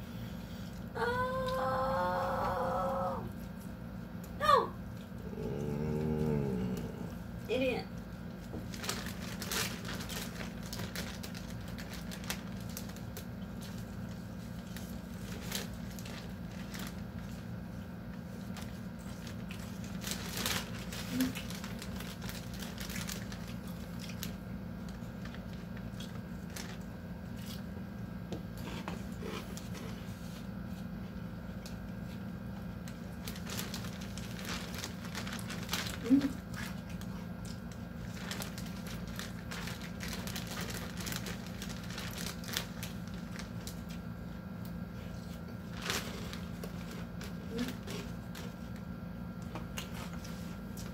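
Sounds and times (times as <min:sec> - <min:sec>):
plastic bag crinkling: 0:08.2 - 0:27.6, 0:32.8 - 0:50.8.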